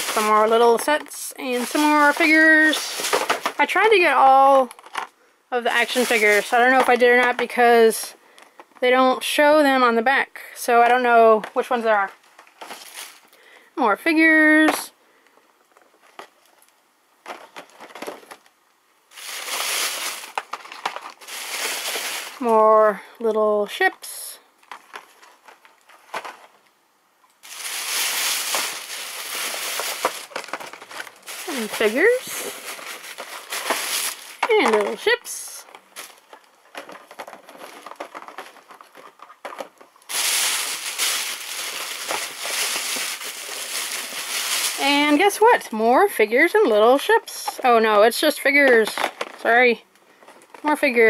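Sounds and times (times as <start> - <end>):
plastic bag rustling: 0.0 - 8.6, 11.4 - 13.6, 15.7 - 18.5, 19.1 - 23.0, 24.6 - 26.7, 27.4 - 45.7
plastic packaging crinkling: 0.0 - 8.7, 11.5 - 13.6, 15.7 - 18.5, 19.1 - 22.7, 24.6 - 26.7, 27.3 - 45.6.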